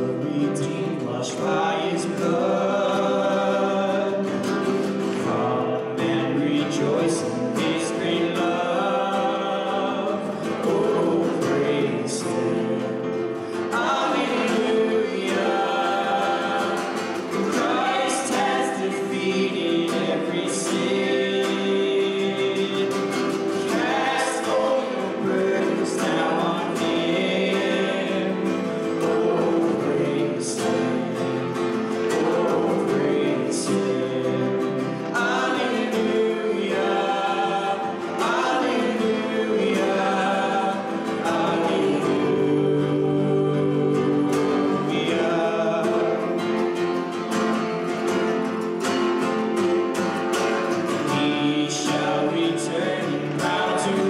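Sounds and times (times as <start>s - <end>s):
man singing into microphone: 0.0s - 46.8s, 51.0s - 54.0s
acoustic guitar: 0.0s - 54.0s
mandolin: 0.0s - 54.0s.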